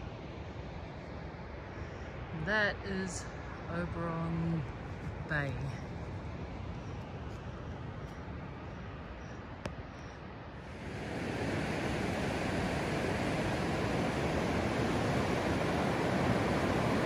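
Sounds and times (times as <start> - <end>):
ocean surf breaking on beach: 10.6 - 17.0.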